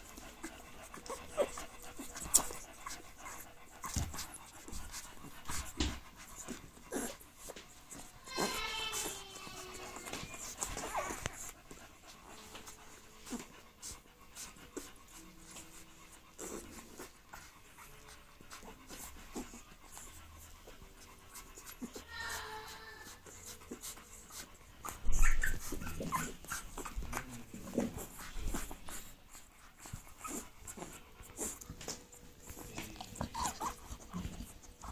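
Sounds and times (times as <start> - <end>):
puppies suckling clicks: 0.0 - 22.1, 22.7 - 34.9
dog breathing: 0.0 - 34.9
puppy squeaks: 7.9 - 11.5, 24.8 - 29.0, 32.4 - 34.9.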